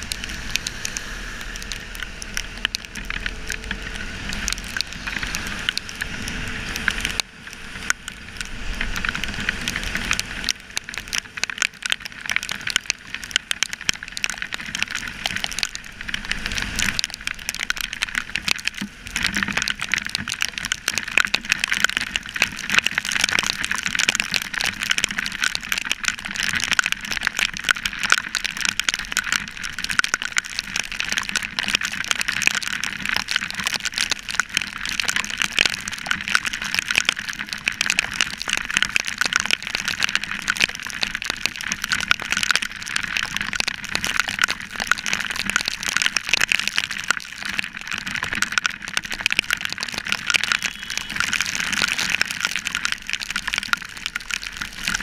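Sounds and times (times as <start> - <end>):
motorcycle ride rumble: 0.0 - 19.2.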